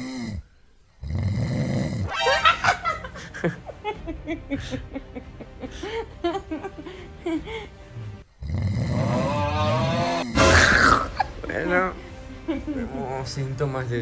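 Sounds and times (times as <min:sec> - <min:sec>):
snore: 0:00.0 - 0:02.1, 0:08.4 - 0:11.1.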